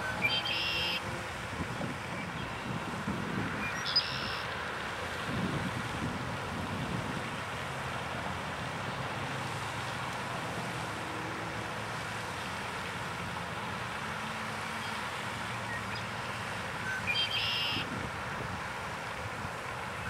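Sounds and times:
bird singing a buzzy trill: 0.0s - 1.0s, 3.6s - 4.5s, 16.9s - 17.8s.

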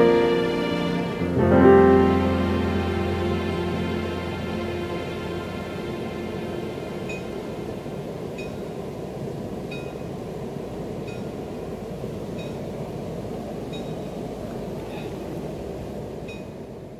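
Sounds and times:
low rumble: 0.0s - 9.6s.

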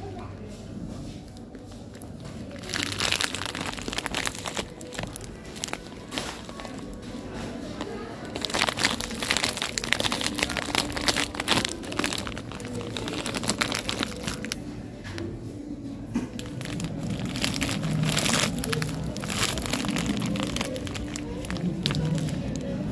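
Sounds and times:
plastic bag crinkling: 1.3s - 15.3s, 16.3s - 22.9s.

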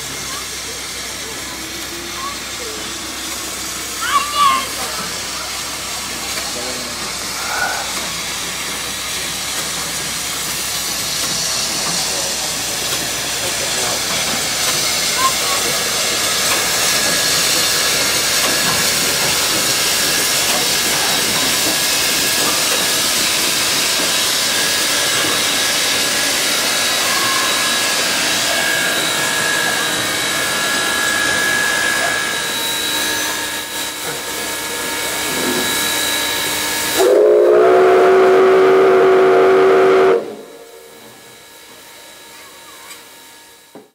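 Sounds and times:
steam hissing loudly: 0.0s - 43.9s
steam locomotive whistle: 36.9s - 41.0s.

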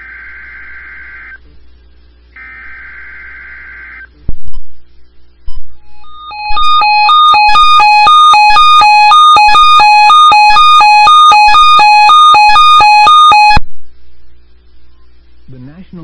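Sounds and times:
electronic two-tone alarm: 5.8s - 13.6s.

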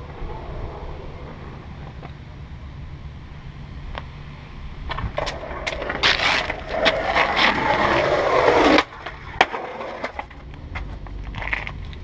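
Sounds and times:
skateboard wheels rolling on pavement: 0.0s - 12.0s
skateboard scraping down metal handrail: 5.2s - 10.9s.

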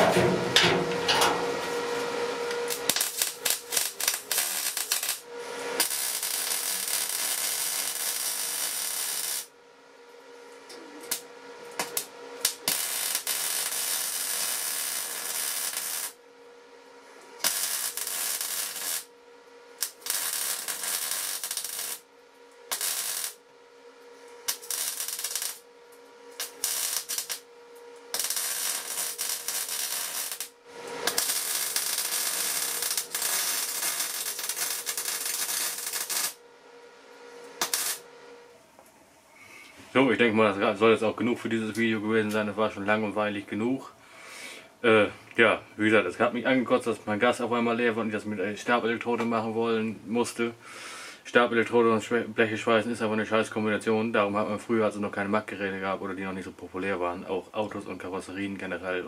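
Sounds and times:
welding arc crackling: 0.0s - 9.5s, 11.0s - 16.2s, 17.4s - 19.1s, 19.8s - 22.1s, 22.7s - 23.4s, 24.4s - 25.7s, 26.4s - 27.5s, 28.1s - 36.4s, 37.6s - 38.1s.

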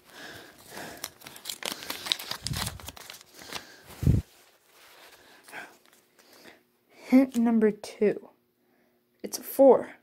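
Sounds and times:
paper crinkling: 0.0s - 6.4s.

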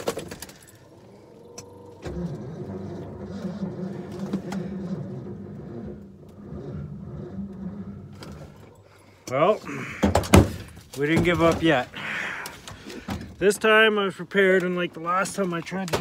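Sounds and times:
starter motor cranking engine: 0.0s - 10.0s.

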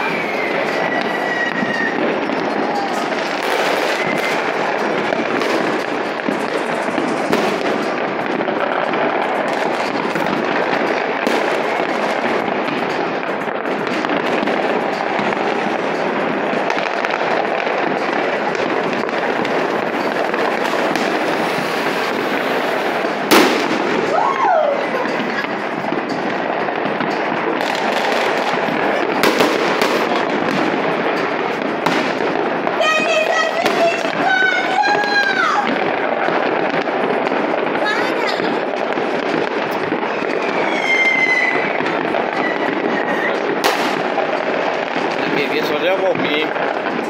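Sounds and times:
fireworks crackling and banging: 0.0s - 47.0s
sharp loud bang: 9.6s - 34.4s.

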